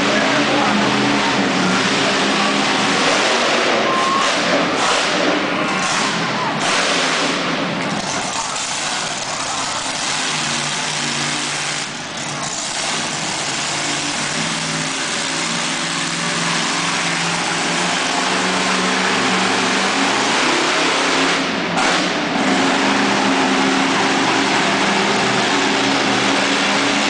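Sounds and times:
monster truck engine revving: 0:00.0 - 0:27.0.

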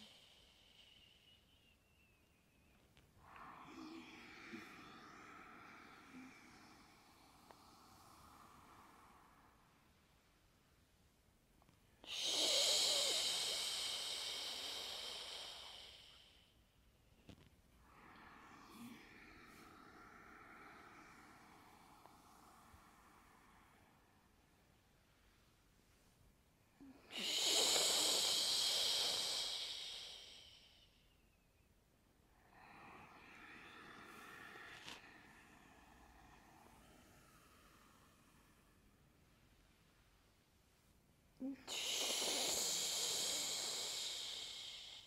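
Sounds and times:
woman exhaling shhh: 0:00.0 - 0:01.8, 0:03.2 - 0:09.8, 0:12.0 - 0:16.6, 0:17.8 - 0:24.4, 0:26.7 - 0:31.1, 0:32.4 - 0:39.0, 0:41.4 - 0:45.0
woman hissing shhh exhalation: 0:12.0 - 0:16.5, 0:26.8 - 0:31.0, 0:41.4 - 0:45.0.

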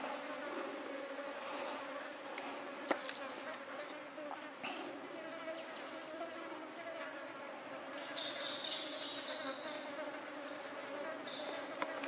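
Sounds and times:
insects buzzing: 0:00.0 - 0:12.0
shrill high insect hum: 0:05.0 - 0:12.0.

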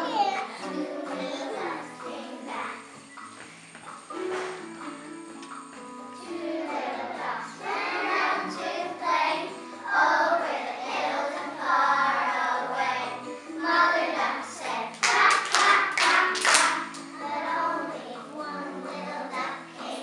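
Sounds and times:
children singing together: 0:00.0 - 0:03.1, 0:06.2 - 0:20.0
hand claps: 0:15.0 - 0:17.1.

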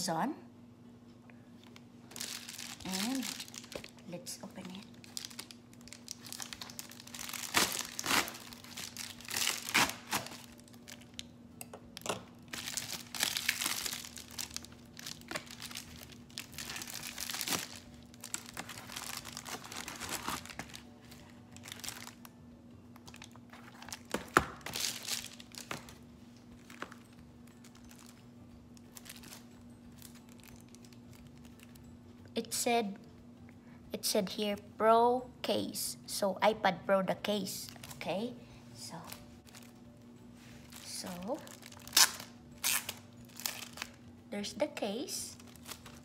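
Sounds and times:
plastic mailer crinkling: 0:02.1 - 0:04.1, 0:04.7 - 0:11.3, 0:12.5 - 0:22.3, 0:23.0 - 0:28.2, 0:28.8 - 0:31.8, 0:40.6 - 0:44.0.

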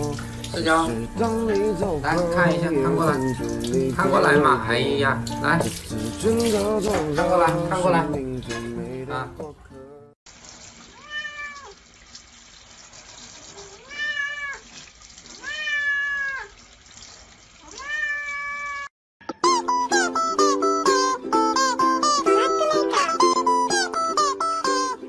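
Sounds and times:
plucked-string music: 0:00.0 - 0:10.2, 0:19.2 - 0:25.0
cat meowing: 0:11.0 - 0:11.8, 0:13.6 - 0:14.7, 0:15.4 - 0:16.5, 0:17.6 - 0:18.9, 0:22.3 - 0:23.3.

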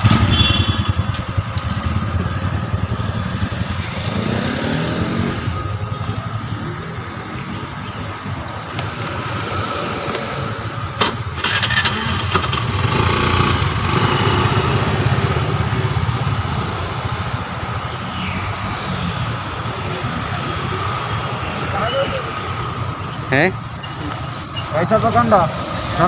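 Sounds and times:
scooter engine running: 0:00.0 - 0:05.2, 0:11.4 - 0:17.1.

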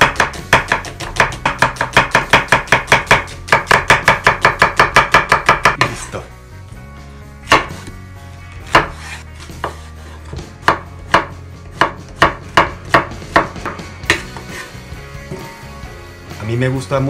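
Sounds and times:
knife chopping on wooden board: 0:00.0 - 0:06.0, 0:07.4 - 0:07.9, 0:08.6 - 0:14.7.

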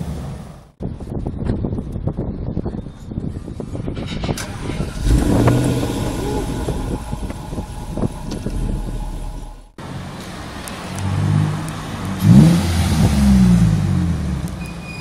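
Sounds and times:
car engine burbling: 0:03.5 - 0:14.7.

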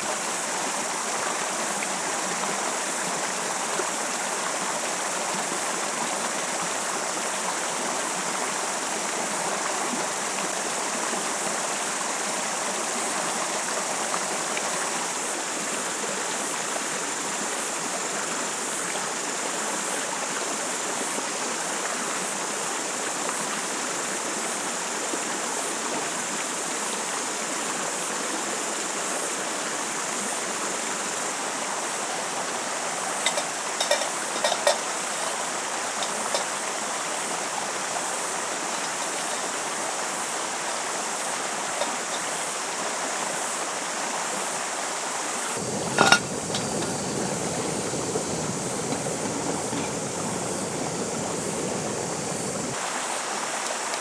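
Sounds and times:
river rushing over stones: 0:00.0 - 0:54.0.

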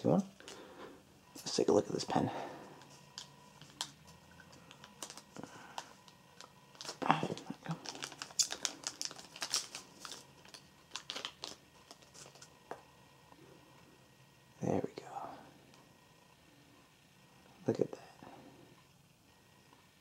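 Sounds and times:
plastic sleeve crinkling: 0:02.8 - 0:12.7.

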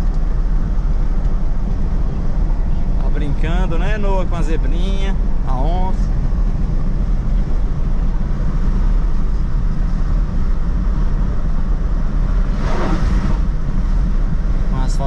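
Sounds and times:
pickup truck engine rumble: 0:00.0 - 0:15.0
road noise: 0:00.0 - 0:15.0
brief rushing swell: 0:12.4 - 0:13.5.

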